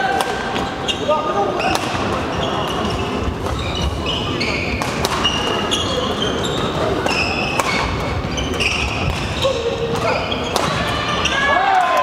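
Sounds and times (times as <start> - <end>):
shoes squeaking on court: 0.7 - 11.5
racket hitting shuttlecock: 1.6 - 3.6, 4.7 - 5.6, 7.0 - 10.9.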